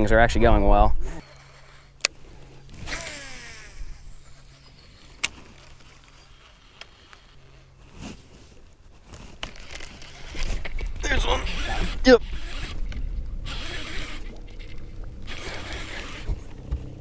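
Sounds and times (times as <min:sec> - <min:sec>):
electric trolling motor humming: 0:01.1 - 0:07.8, 0:09.4 - 0:17.0
fishing reel whirring: 0:01.2 - 0:07.7, 0:09.5 - 0:16.6.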